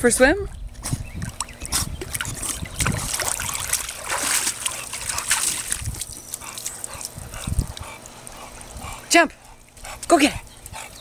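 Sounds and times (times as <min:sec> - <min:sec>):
pool water splashing: 0:01.3 - 0:11.0.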